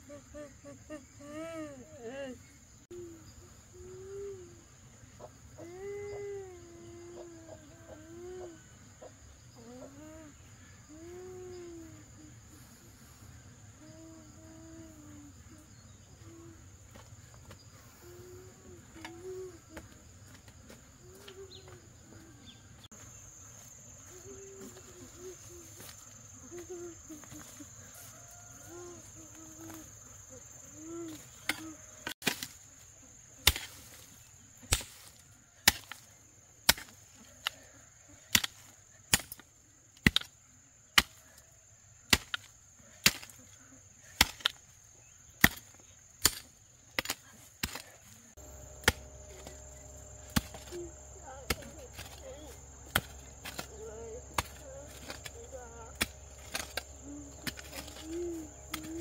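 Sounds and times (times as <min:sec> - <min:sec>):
high insect drone: 0:00.0 - 0:59.0
hoe chopping into soil: 0:33.4 - 0:34.0, 0:36.7 - 0:37.0, 0:42.1 - 0:43.4, 0:44.2 - 0:44.6, 0:48.8 - 0:49.6, 0:50.2 - 0:50.8, 0:52.8 - 0:55.4.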